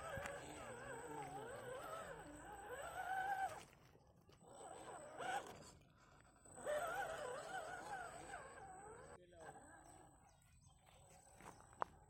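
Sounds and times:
rc car motor whining: 0:00.0 - 0:09.8.

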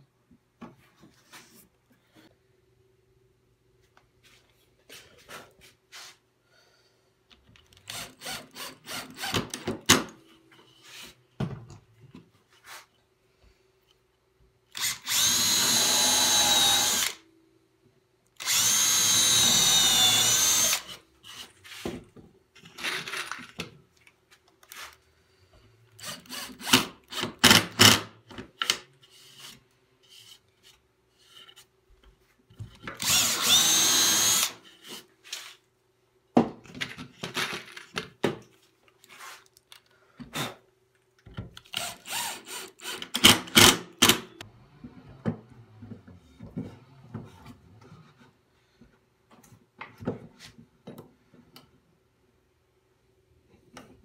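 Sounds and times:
cordless drill boring into wood: 0:14.8 - 0:17.2, 0:18.4 - 0:21.4, 0:26.0 - 0:28.0, 0:33.0 - 0:34.6, 0:41.7 - 0:44.3.

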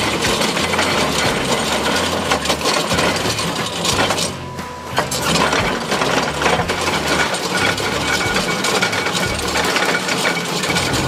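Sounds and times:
drum cutter grinding rock: 0:00.0 - 0:11.0.

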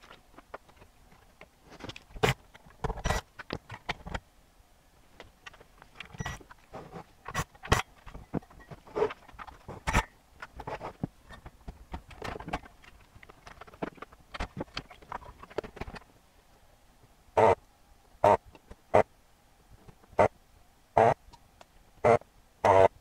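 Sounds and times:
clicks and rattles of handled electronics: 0:00.0 - 0:04.2, 0:05.2 - 0:16.1
desoldering pump buzz: 0:17.4 - 0:17.6, 0:21.0 - 0:21.2, 0:22.0 - 0:23.0.

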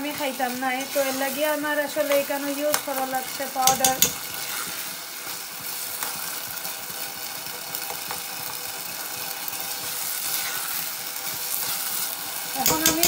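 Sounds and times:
rice sizzling in a pan: 0:00.0 - 0:13.0
metal spoon scraping: 0:03.6 - 0:04.3, 0:12.6 - 0:13.0.

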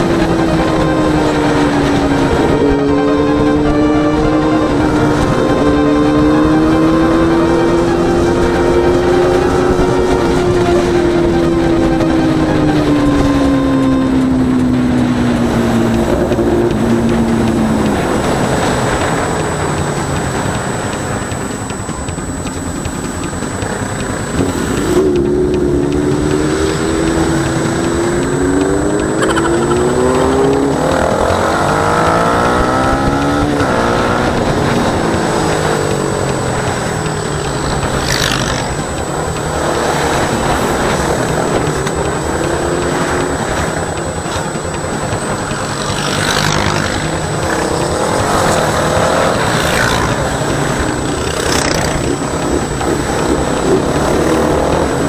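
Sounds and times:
motorcycle engine accelerating: 0:00.0 - 0:55.0
road and wind noise: 0:00.0 - 0:55.0.

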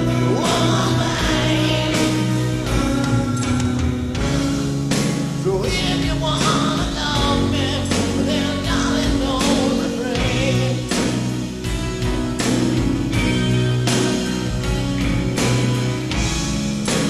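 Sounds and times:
man singing: 0:00.0 - 0:04.6, 0:05.4 - 0:11.2
full band playing: 0:00.0 - 0:17.0
grand piano: 0:00.0 - 0:17.0.

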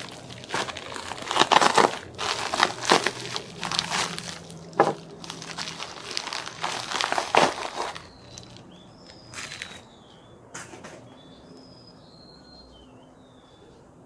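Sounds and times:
plastic mailer crinkling: 0:00.0 - 0:09.8.

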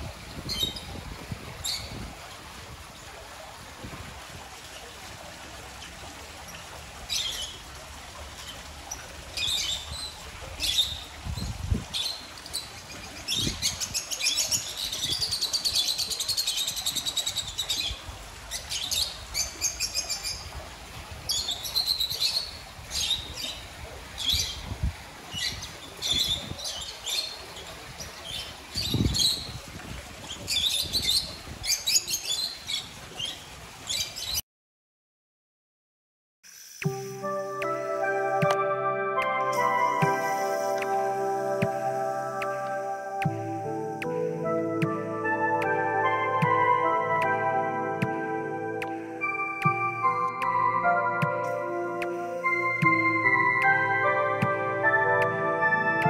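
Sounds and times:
lovebirds chirping and chattering: 0:01.6 - 0:02.0, 0:08.5 - 0:20.5.

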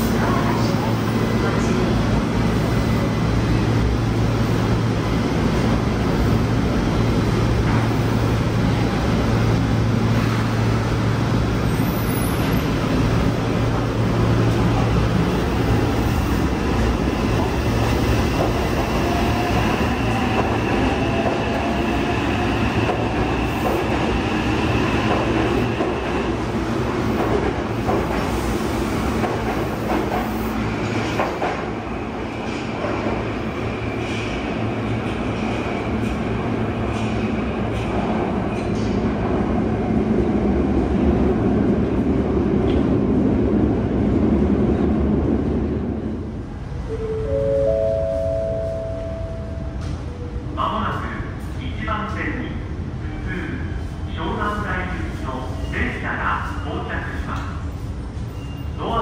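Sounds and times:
wheels rumbling on rail: 0:47.7 - 0:50.6.

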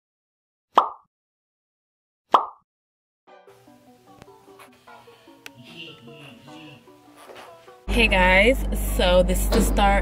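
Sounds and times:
cartoon pop: 0:00.7 - 0:01.1, 0:02.3 - 0:02.6
background music: 0:03.3 - 0:10.0.

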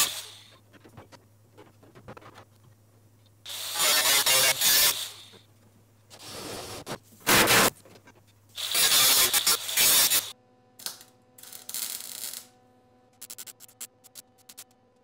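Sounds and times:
angle grinder cutting steel: 0:03.5 - 0:05.3, 0:08.6 - 0:10.4
welder crackling: 0:08.6 - 0:12.6.

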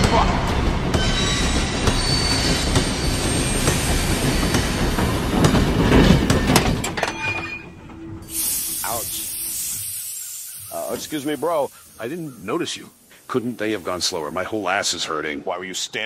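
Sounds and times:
train clattering: 0:00.0 - 0:08.2
train wheels screeching on rails: 0:00.8 - 0:14.6
steam hiss: 0:01.8 - 0:06.1, 0:08.2 - 0:15.2.

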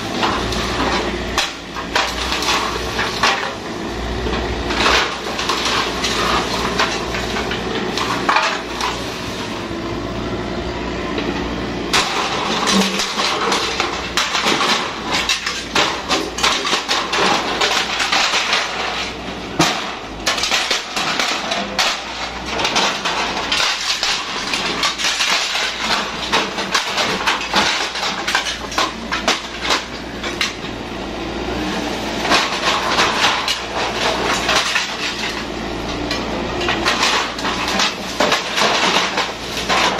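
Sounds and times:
excavator diesel engine hum: 0:00.0 - 0:39.9
timber cracking and clattering: 0:11.9 - 0:30.8, 0:32.2 - 0:39.9.

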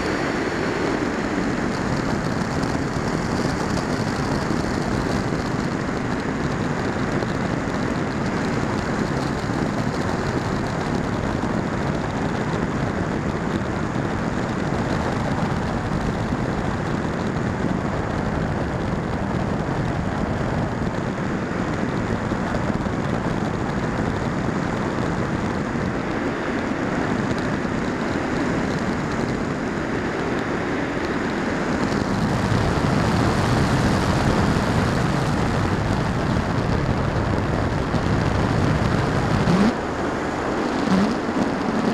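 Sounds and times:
airflow rushing over microphone: 0:00.0 - 0:41.9.

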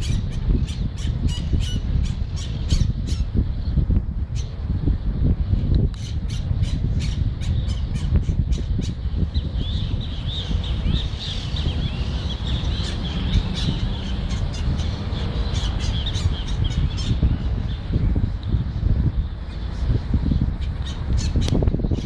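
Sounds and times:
birds squawking and chattering: 0:00.0 - 0:03.3, 0:06.0 - 0:18.0, 0:19.5 - 0:22.0.

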